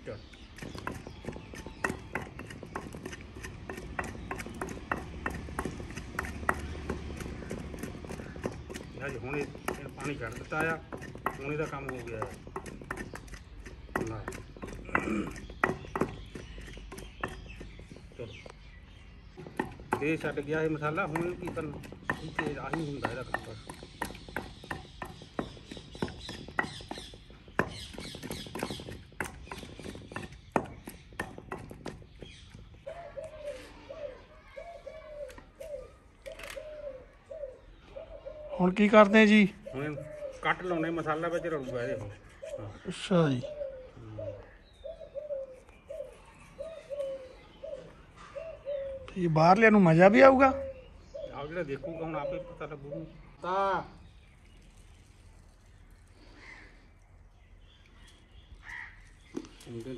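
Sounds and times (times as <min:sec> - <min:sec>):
pestle pounding in mortar: 0:00.3 - 0:18.2, 0:19.4 - 0:32.9.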